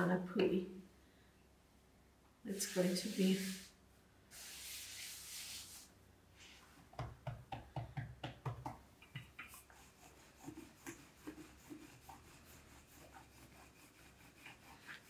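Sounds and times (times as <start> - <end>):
hands pressing dough: 6.9 - 9.7
rolling pin rolling dough: 7.0 - 15.0.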